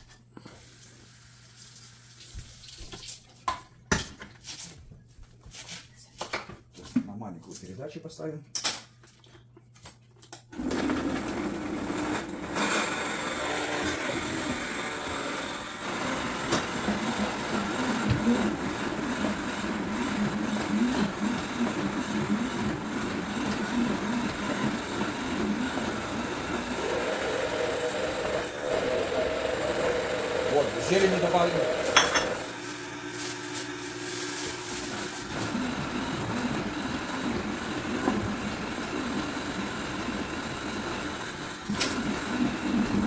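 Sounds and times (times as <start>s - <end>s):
blender running at high speed: 10.6s - 43.0s.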